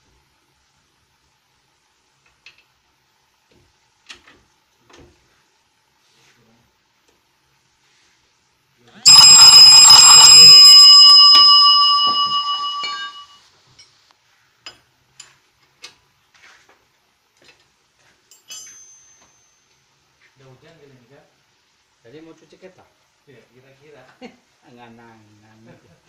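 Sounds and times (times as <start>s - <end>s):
loud metallic clang ringing: 9.1s - 13.2s.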